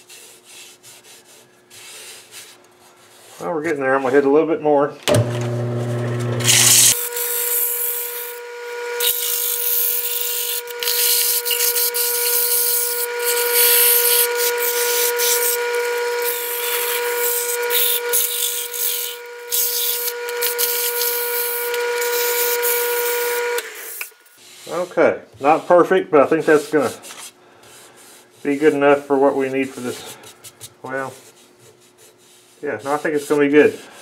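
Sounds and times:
lathe motor whine: 0:05.1 - 0:24.2
sandpaper sanding wood hiss: 0:06.5 - 0:08.4, 0:09.0 - 0:30.3, 0:31.0 - 0:34.0.

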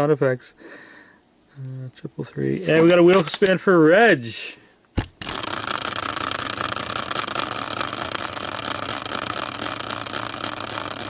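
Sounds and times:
prize wheel whirring: 0:05.2 - 0:11.0.

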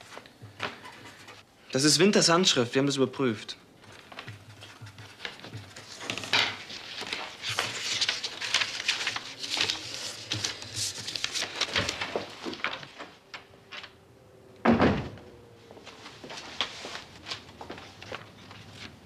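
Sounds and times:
rustling and clattering objects: 0:03.8 - 0:14.0.

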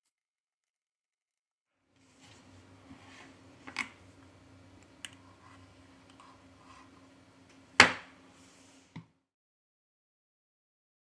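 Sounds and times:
faint steady hum: 0:01.9 - 0:09.2.

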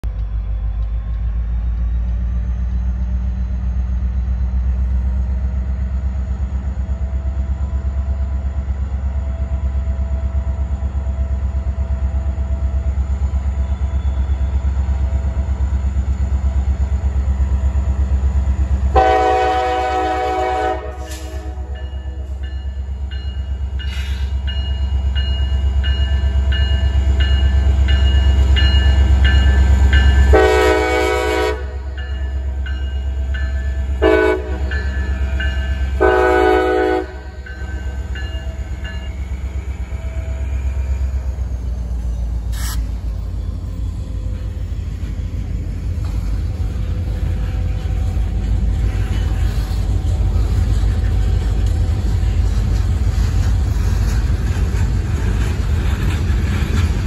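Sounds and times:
diesel locomotive rumbling: 0:00.0 - 0:57.0
train horn blast: 0:18.9 - 0:22.3, 0:30.2 - 0:32.0, 0:33.9 - 0:37.4.

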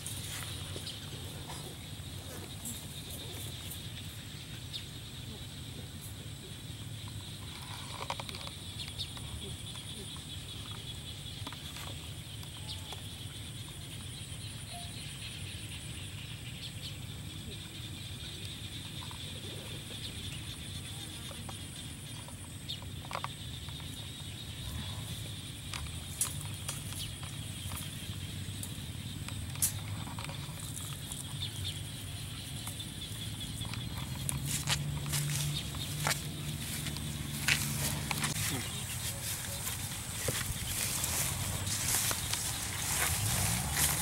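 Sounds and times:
bird chirping: 0:07.2 - 0:25.4, 0:26.0 - 0:44.0
steady low hum: 0:23.5 - 0:44.0
high insect buzz: 0:23.6 - 0:44.0.

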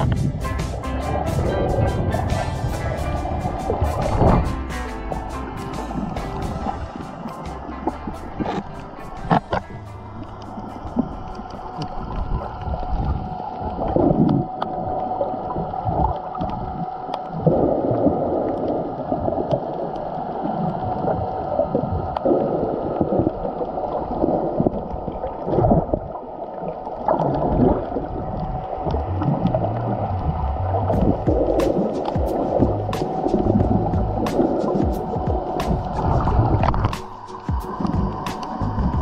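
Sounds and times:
muffled underwater water rushing: 0:00.0 - 0:39.0
sharp underwater clicks: 0:30.8 - 0:39.0.

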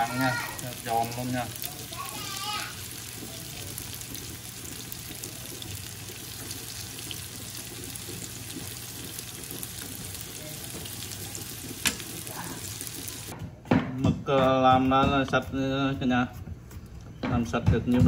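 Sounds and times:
tofu sizzling in oil: 0:00.0 - 0:13.3.

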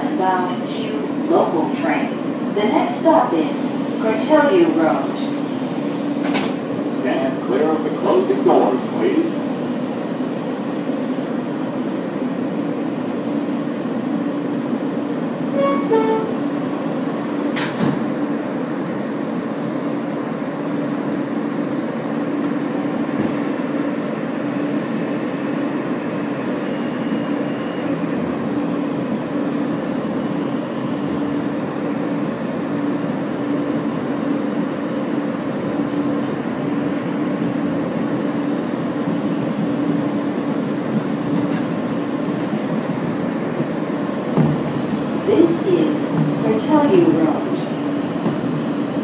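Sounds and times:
train wheels rumbling on rail: 0:00.0 - 0:49.0.

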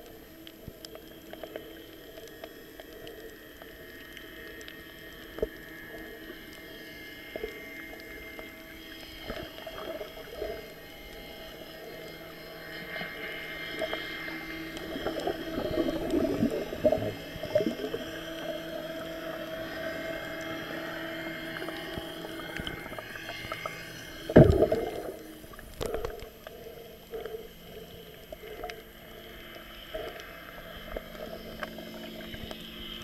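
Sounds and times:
bubbling and crackling: 0:00.0 - 0:33.0
underwater motor hum: 0:00.0 - 0:33.0.

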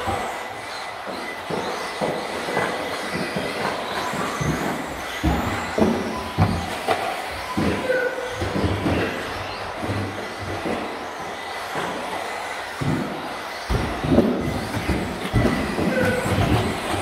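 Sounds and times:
electric toy car motors whining: 0:00.0 - 0:17.0
knocks and clatters: 0:00.0 - 0:17.0
wheels hissing on carpet: 0:00.0 - 0:17.0.

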